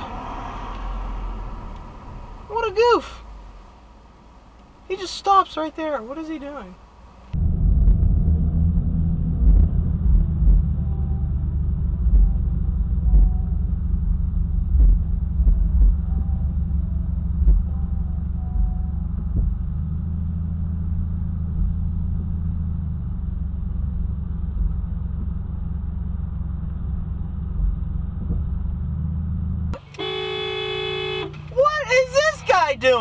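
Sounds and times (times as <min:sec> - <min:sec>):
car cabin rumble: 0:00.0 - 0:33.0
car horn blast: 0:29.8 - 0:31.6.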